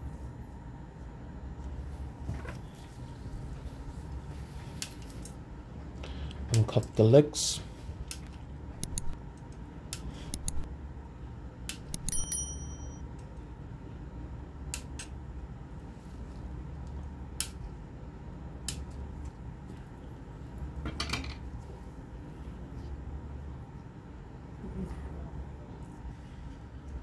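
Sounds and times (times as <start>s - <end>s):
steady low hum: 0.0s - 27.0s
brief bell-like ring: 12.0s - 13.0s.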